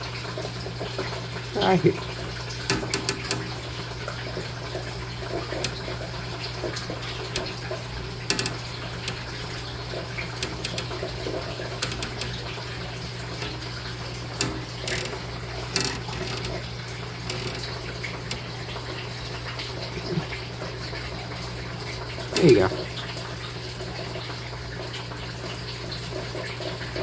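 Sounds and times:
running water: 0.0s - 27.0s
small splashes and clicks: 2.0s - 23.6s.

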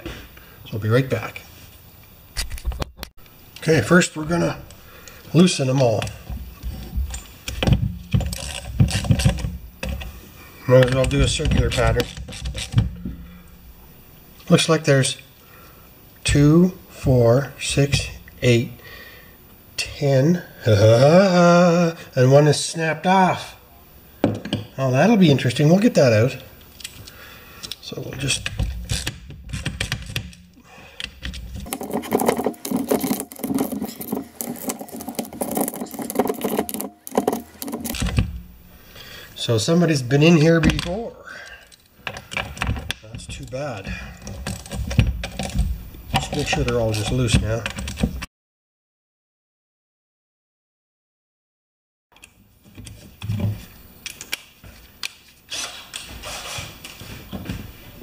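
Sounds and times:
socket ratchet clicking rapidly: 31.6s - 38.1s.

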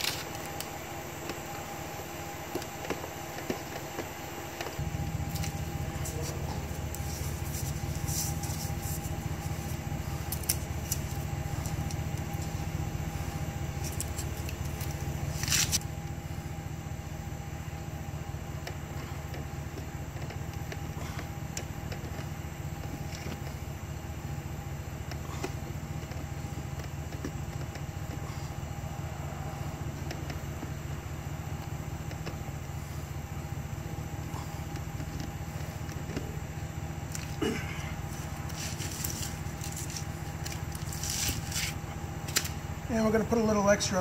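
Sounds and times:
tape crackling under hands: 0.0s - 16.0s, 34.6s - 42.9s
constant hum: 0.0s - 44.0s
machine low rumble: 0.0s - 44.0s.

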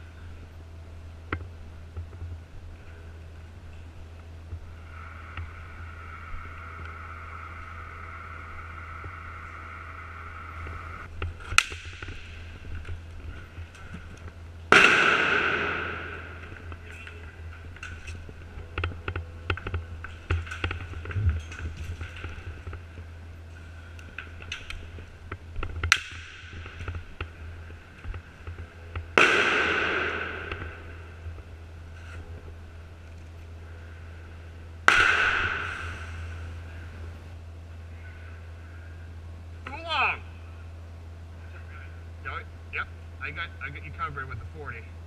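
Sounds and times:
sharp cracks: 4.8s - 31.4s, 34.8s - 36.6s
airsoft gun shots: 14.7s - 16.5s, 29.2s - 31.0s, 34.9s - 36.2s
loud echoing bangs: 14.7s - 16.8s, 29.1s - 31.3s, 34.8s - 36.5s.

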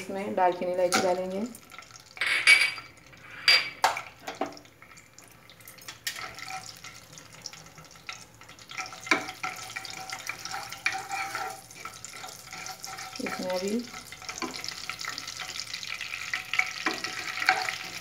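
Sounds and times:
spices sizzling in hot ghee: 0.0s - 18.0s
wooden spatula stirring: 6.1s - 18.0s.

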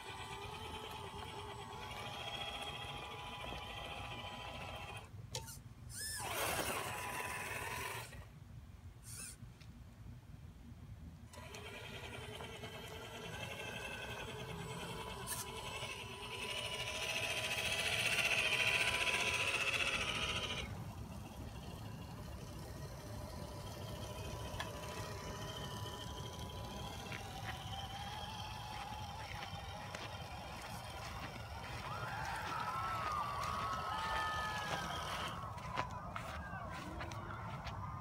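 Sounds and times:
toy car electric motor whining: 0.0s - 8.2s, 9.0s - 9.4s, 11.3s - 35.8s.

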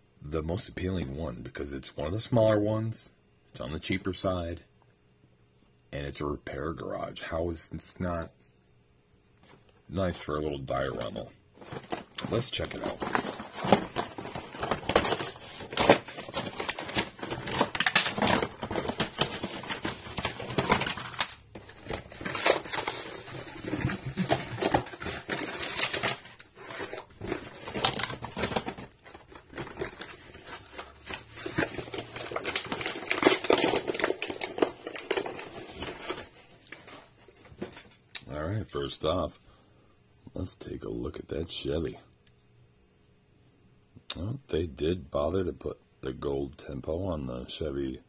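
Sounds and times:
cardboard and plastic rustling: 10.7s - 38.0s.

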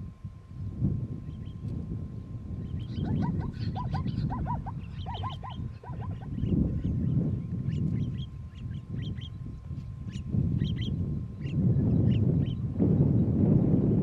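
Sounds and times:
wind rumble on microphone: 0.0s - 14.0s
honking animal calls: 3.0s - 6.4s.

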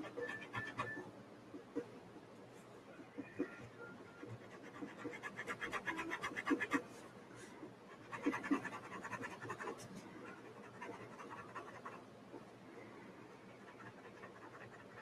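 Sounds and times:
pencil scratching on paper: 0.0s - 1.0s, 4.2s - 7.1s, 7.9s - 12.5s, 13.3s - 15.0s.

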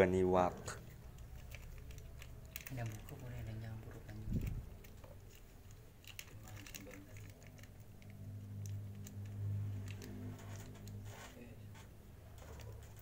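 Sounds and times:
steady low hum: 0.0s - 13.0s
plastic bags crinkling: 0.9s - 7.8s.

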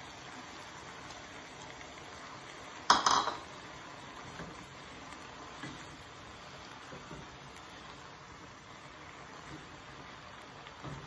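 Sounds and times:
faint steady hiss: 0.0s - 11.0s
kitchenware clinking: 2.9s - 3.5s.

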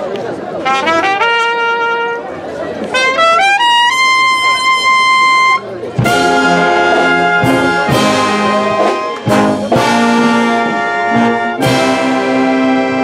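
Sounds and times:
brass band playing chords: 0.6s - 13.0s
drum and cymbal hits: 6.0s - 10.7s.

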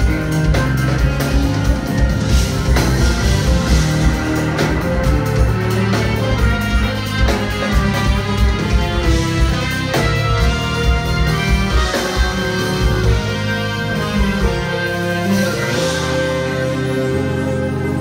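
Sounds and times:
drum beat: 0.0s - 14.9s
electric bass: 0.0s - 18.0s
electric guitar: 0.0s - 18.0s
organ: 0.0s - 18.0s.

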